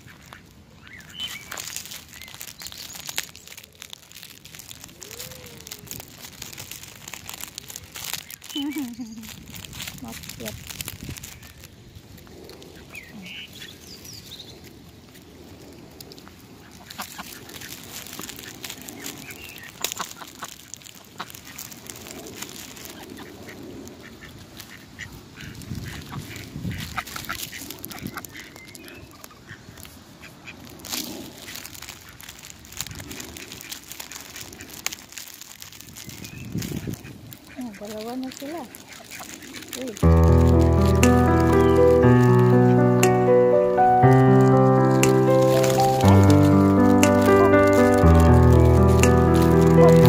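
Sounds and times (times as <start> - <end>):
rustling: 0.0 - 50.0
ducks quacking: 37.0 - 50.0.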